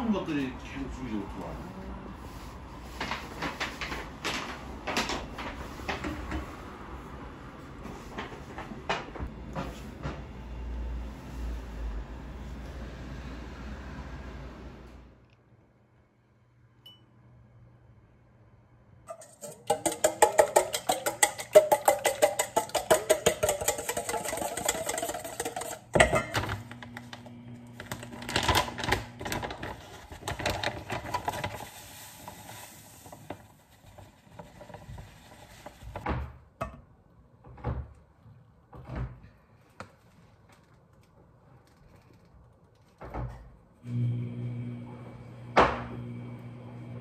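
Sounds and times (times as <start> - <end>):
whisk rattling in metal bowl: 19.1 - 26.6
flour sieve knocking: 19.1 - 26.7
sugar pouring from plastic bag: 27.8 - 35.9.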